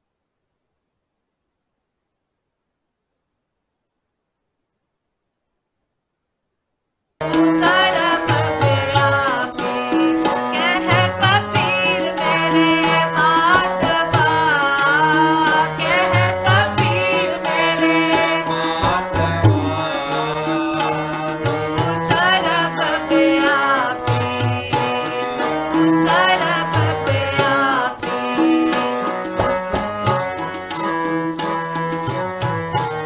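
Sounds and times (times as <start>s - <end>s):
person singing a hymn: 7.2s - 30.7s
harmonium chords: 7.2s - 33.0s
tabla strokes: 7.2s - 33.0s.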